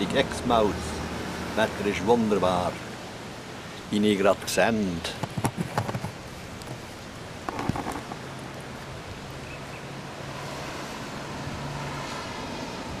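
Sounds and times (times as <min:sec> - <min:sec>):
wind noise: 0:05.1 - 0:09.6
knocks: 0:05.2 - 0:06.2.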